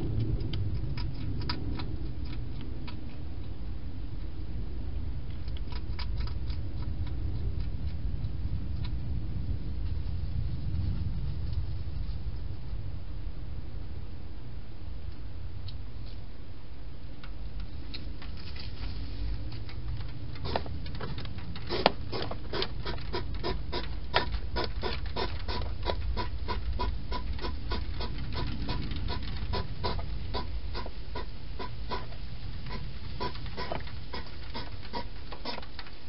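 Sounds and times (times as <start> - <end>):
steady low hum: 0.0 - 36.0
hedgehog chewing clicks: 0.1 - 3.6, 5.3 - 9.0, 19.4 - 36.0.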